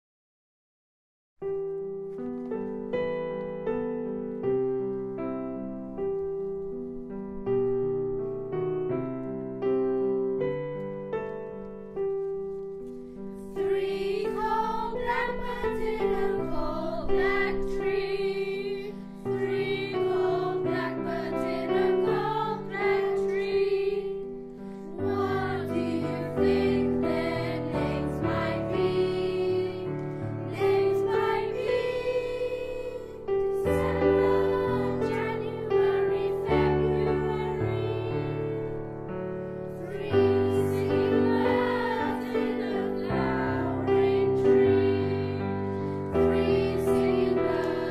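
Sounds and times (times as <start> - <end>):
piano playing: 1.4 - 47.9
children's choir singing: 13.4 - 47.9.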